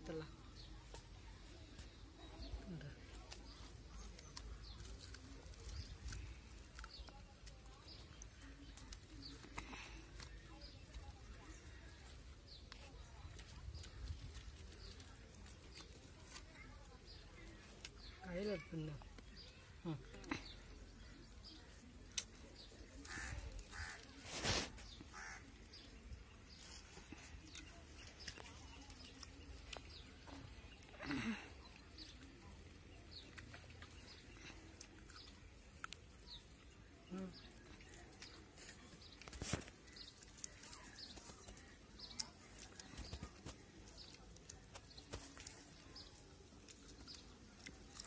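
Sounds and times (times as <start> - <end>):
crows cawing: 25.1 - 25.5.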